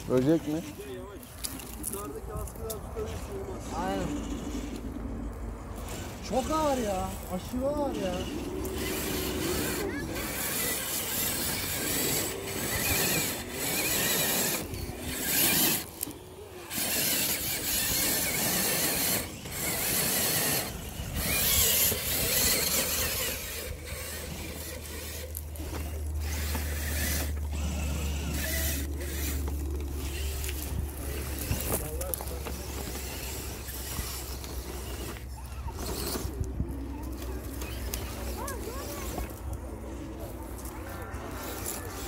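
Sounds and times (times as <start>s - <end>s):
electric motor whining: 0.0s - 42.0s.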